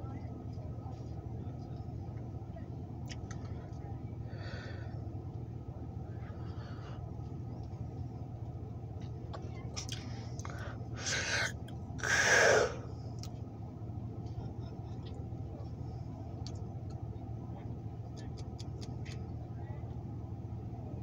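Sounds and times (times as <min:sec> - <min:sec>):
diesel locomotive idling: 0:00.0 - 0:21.0
short hisses: 0:11.0 - 0:12.9.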